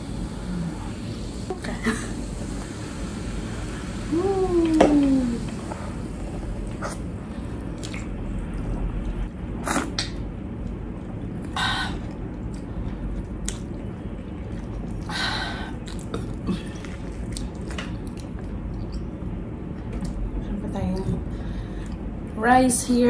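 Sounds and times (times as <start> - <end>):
chewing with wet mouth clicks: 6.7 - 15.1, 15.7 - 20.2.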